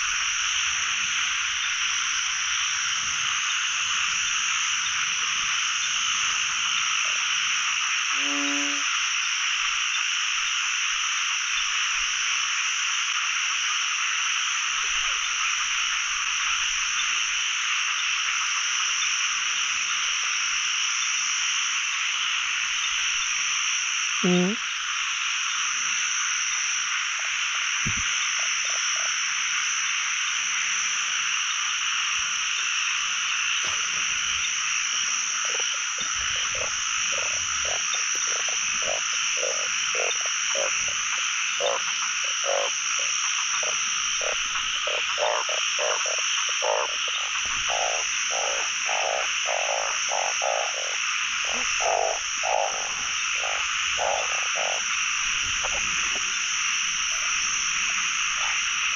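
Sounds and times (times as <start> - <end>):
frog croaking low: 0.0 - 10.6, 26.4 - 58.9
chorus of frogs calling: 0.0 - 58.9.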